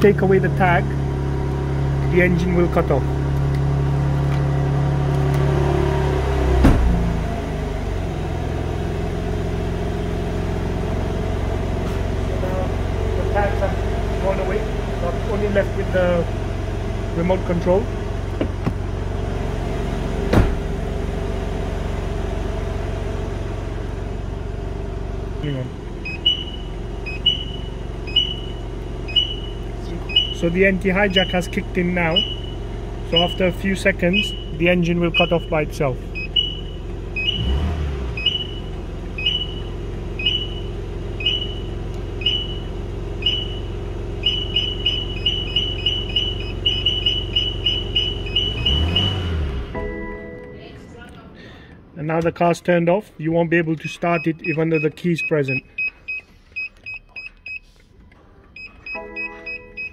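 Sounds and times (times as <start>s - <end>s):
car engine idling: 0.0s - 49.9s
car alarm beeping chirps: 26.0s - 50.3s, 53.8s - 57.8s, 58.5s - 59.9s.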